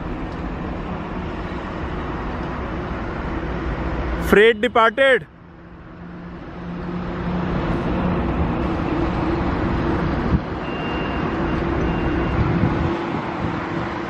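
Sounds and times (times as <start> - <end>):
train rumble and hum: 5.5 - 14.0.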